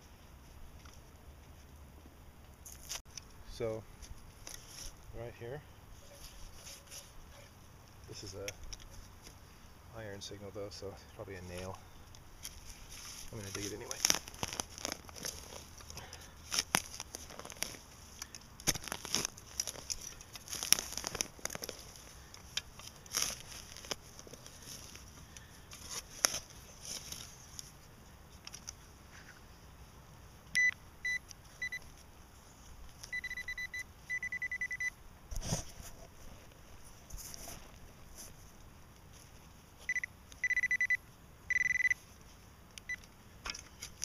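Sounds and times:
digging in soil and leaf litter: 0:02.6 - 0:29.9
metal detector beeping: 0:30.6 - 0:31.9, 0:33.0 - 0:35.0, 0:39.8 - 0:42.0, 0:42.9 - 0:43.1.

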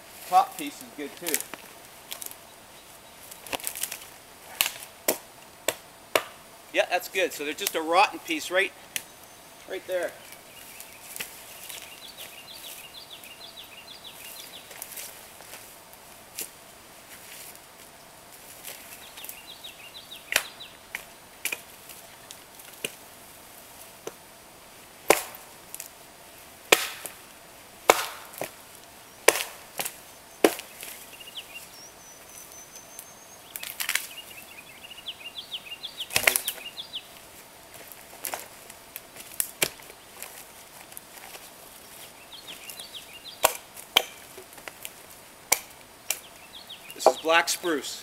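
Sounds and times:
axe chopping wood: 0:04.6 - 0:06.4, 0:25.0 - 0:25.5, 0:26.7 - 0:27.2, 0:27.8 - 0:28.6, 0:29.2 - 0:30.7, 0:36.1 - 0:36.6, 0:39.5 - 0:39.9, 0:43.4 - 0:44.6, 0:45.5 - 0:46.2.

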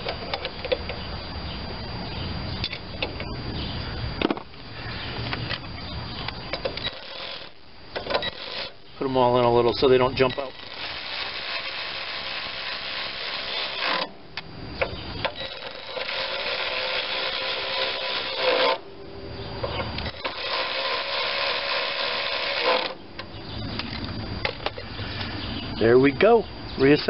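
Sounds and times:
electric ratchet running bolts: 0:06.5 - 0:14.2, 0:14.8 - 0:18.9, 0:19.7 - 0:24.8.

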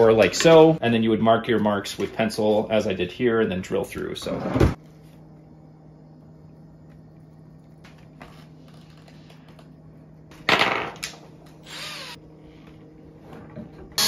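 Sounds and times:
cordless drill motor bursts: 0:11.6 - 0:12.2.

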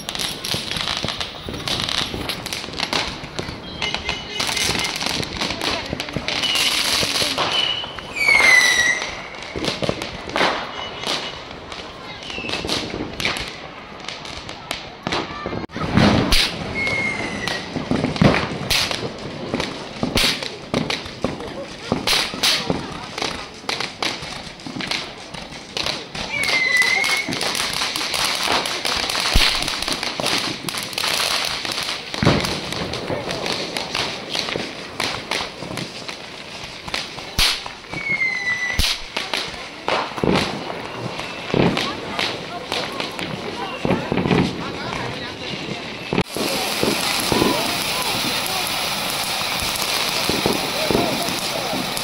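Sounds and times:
firework whistle: 0:00.0 - 0:02.5, 0:03.4 - 0:05.2, 0:06.3 - 0:13.4, 0:15.5 - 0:17.9, 0:26.3 - 0:27.6, 0:37.4 - 0:39.1, 0:40.7 - 0:42.0, 0:45.9 - 0:52.0
firework whistling: 0:00.0 - 0:21.2, 0:21.8 - 0:52.0
firecrackers banging: 0:00.0 - 0:52.0
people's voices: 0:00.0 - 0:52.0.

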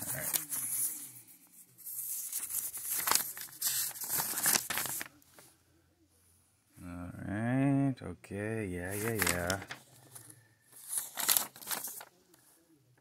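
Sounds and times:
paper rustling and crinkling: 0:00.0 - 0:01.2, 0:01.8 - 0:05.5, 0:08.8 - 0:12.2.

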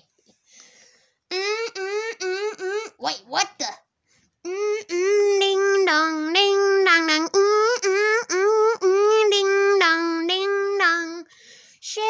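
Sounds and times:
child singing: 0:04.5 - 0:12.0.

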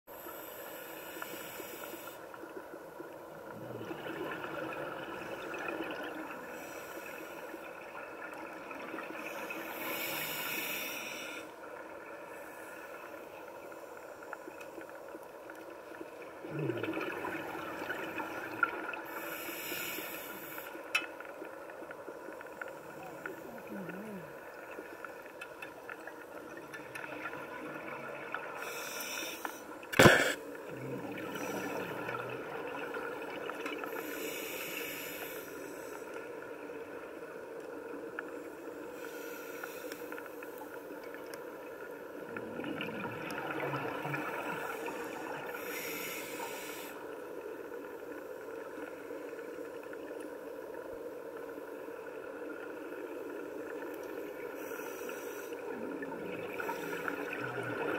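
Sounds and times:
steady underwater drone: 0:00.1 - 0:57.9
regulator bubbles hissing: 0:16.1 - 0:20.9, 0:21.5 - 0:36.1, 0:37.8 - 0:50.4, 0:52.0 - 0:57.9.

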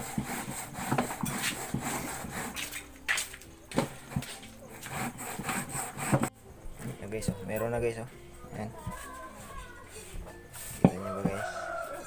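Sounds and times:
hand grating on metal grater: 0:00.0 - 0:02.9, 0:04.1 - 0:06.3.

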